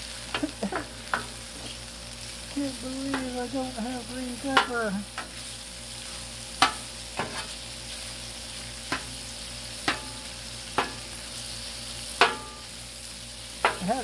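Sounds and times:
food sizzling on griddle: 0.0s - 14.0s
metal spatula scraping steel: 6.1s - 7.7s.

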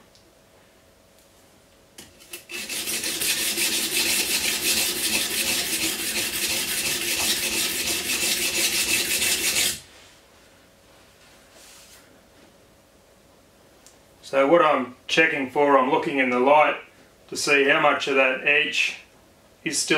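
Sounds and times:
knife scraping on stone: 2.1s - 9.8s.

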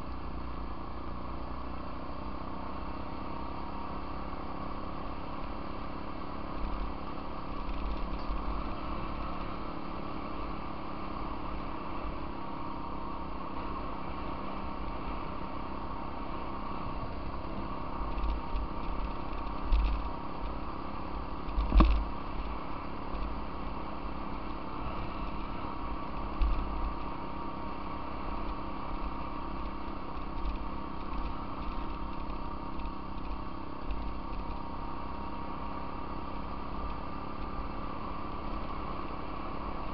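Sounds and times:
off-road vehicle engine running: 0.0s - 39.9s
thumps and knocks from bumps: 21.5s - 22.0s.

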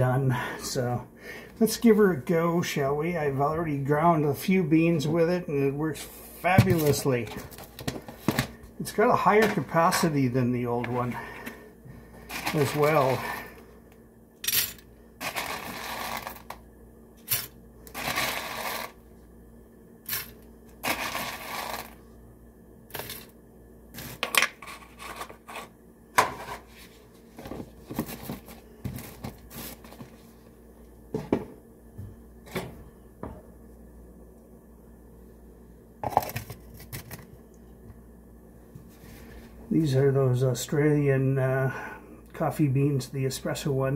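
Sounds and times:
coffee beans rattling into grinder: 12.3s - 13.4s, 14.4s - 16.6s, 17.3s - 19.0s, 20.1s - 22.0s.

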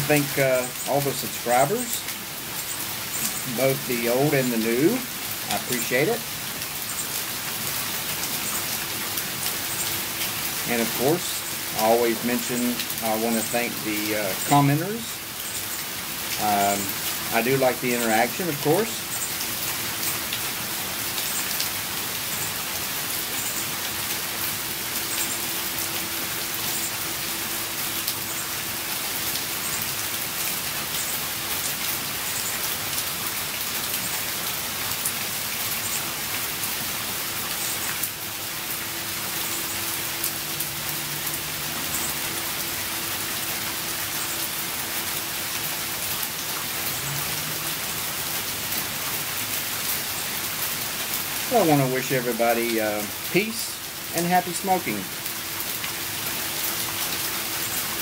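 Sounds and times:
steady rain: 0.0s - 58.0s.

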